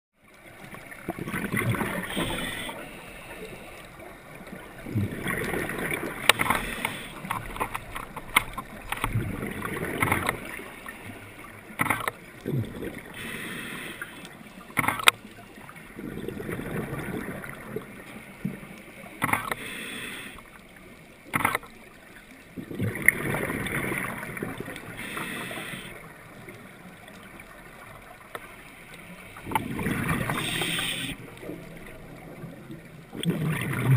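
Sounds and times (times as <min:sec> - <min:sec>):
exhaled bubbles gurgling: 0:00.4 - 0:20.0, 0:22.5 - 0:28.3, 0:29.1 - 0:33.9
diver breathing through regulator: 0:01.9 - 0:03.9, 0:06.4 - 0:07.4, 0:13.0 - 0:14.3, 0:19.3 - 0:20.5, 0:24.9 - 0:26.0, 0:30.0 - 0:31.2.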